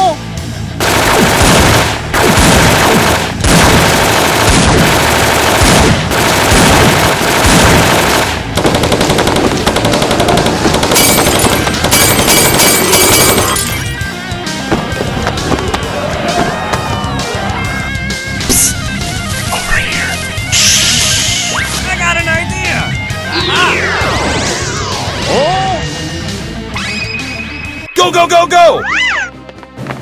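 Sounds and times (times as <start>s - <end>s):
machine-gun fire: 0.8s - 13.9s.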